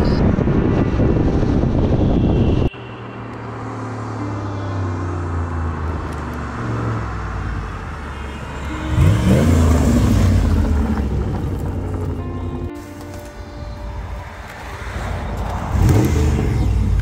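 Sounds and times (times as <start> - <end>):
car engine accelerating: 3.3 - 13.1, 14.6 - 17.0.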